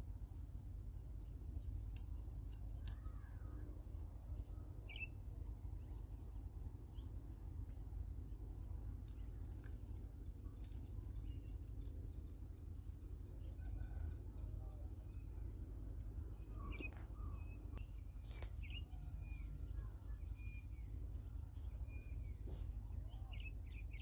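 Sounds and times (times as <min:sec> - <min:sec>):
steady low rumble: 0:00.0 - 0:24.0
bird chirps: 0:16.3 - 0:24.0.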